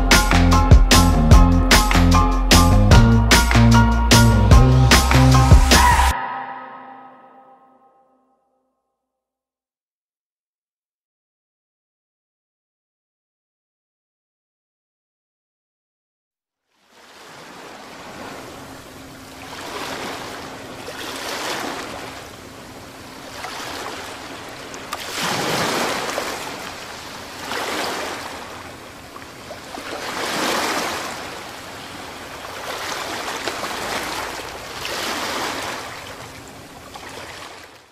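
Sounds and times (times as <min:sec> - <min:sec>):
waves washing in: 0:16.8 - 0:37.9.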